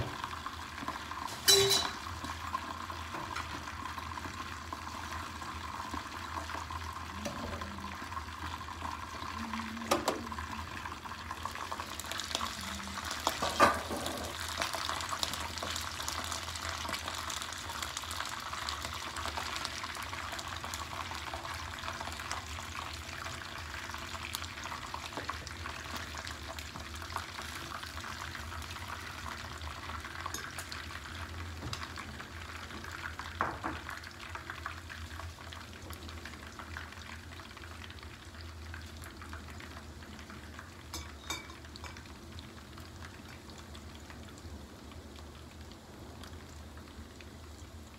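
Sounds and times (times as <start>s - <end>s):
fish sizzling in hot oil: 0.0s - 47.9s
lid and spatula knocking pan: 1.5s - 2.1s.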